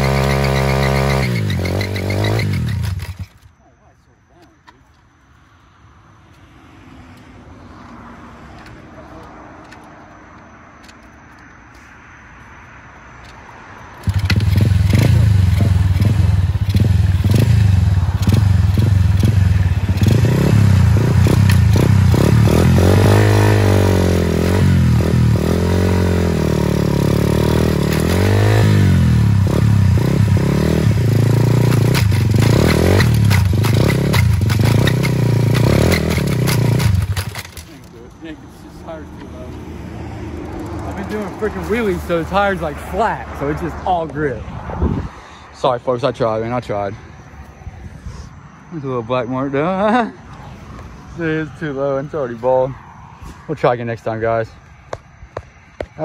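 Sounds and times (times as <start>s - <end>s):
motorbike engine revving: 0.0s - 3.4s, 13.9s - 43.8s.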